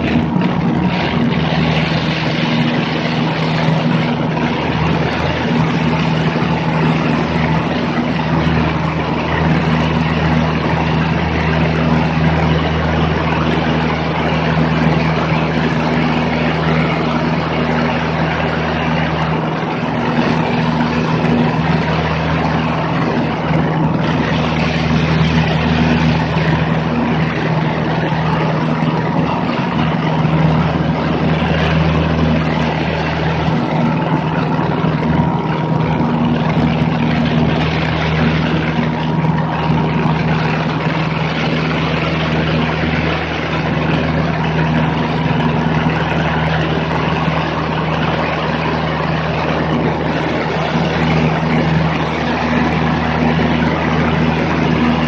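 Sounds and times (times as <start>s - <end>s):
plane engine droning: 0.0s - 55.0s
rush of airflow: 0.0s - 55.0s.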